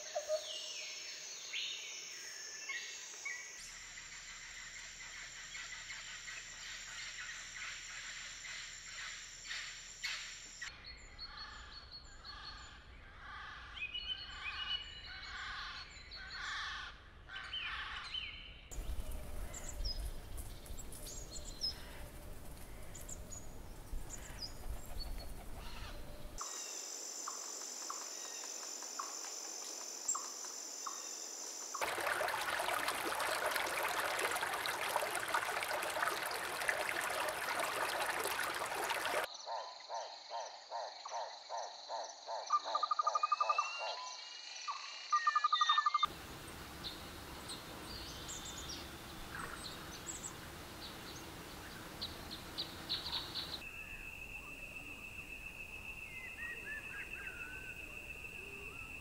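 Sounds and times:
dense hiss of calls: 25.6 - 39.3.

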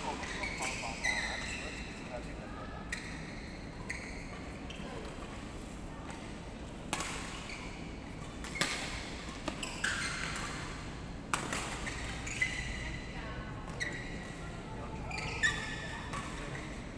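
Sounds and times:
rackets hitting shuttlecock: 6.9 - 7.5, 8.2 - 12.2.

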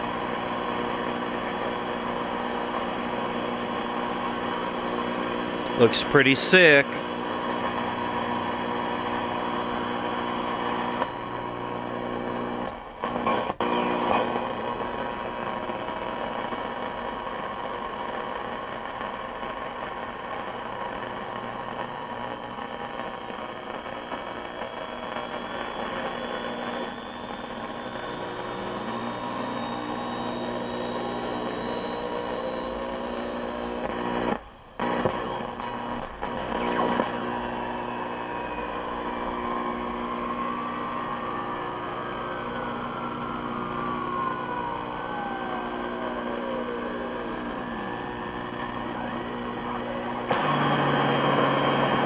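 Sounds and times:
television hiss and hum: 0.2 - 52.0
rising tone: 35.2 - 52.0.

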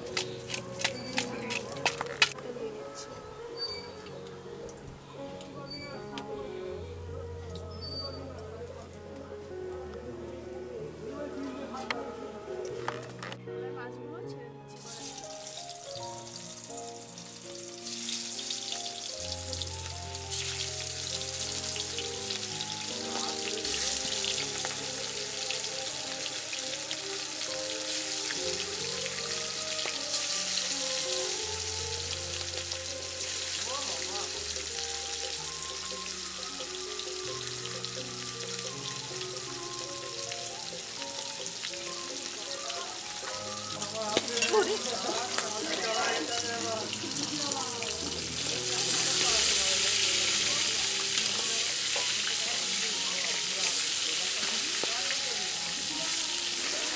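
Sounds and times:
background music: 0.0 - 56.9
vegetables sizzling in oil: 14.8 - 56.9.

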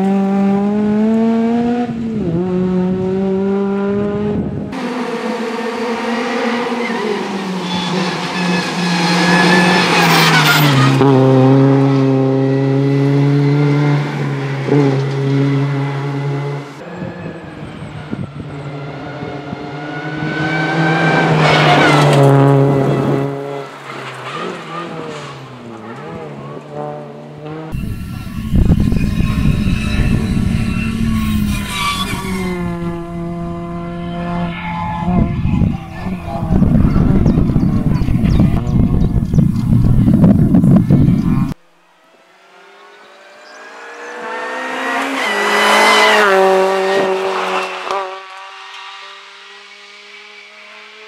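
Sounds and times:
rally car engine at high revs: 0.0 - 51.0
heavy low rumble: 27.8 - 41.6.

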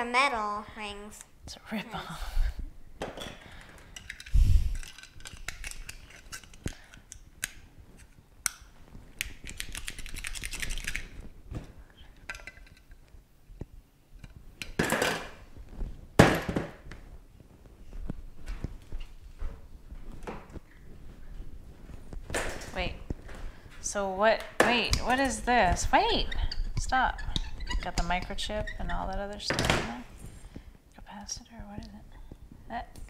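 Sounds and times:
plastic parts clicking and tapping: 3.1 - 8.6.

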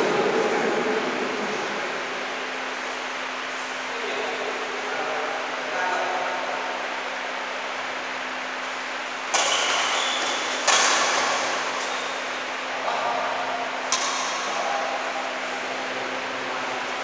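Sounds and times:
steady background hum: 0.0 - 17.0
racket hitting shuttlecock: 9.2 - 12.0, 13.9 - 14.6.

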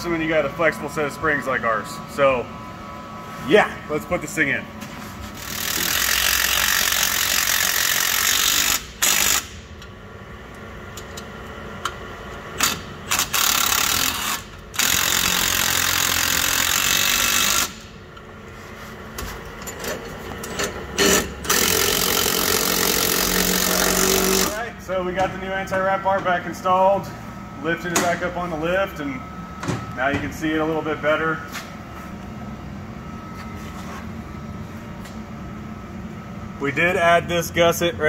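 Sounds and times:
impact wrench hammering bolts: 19.8 - 24.6.

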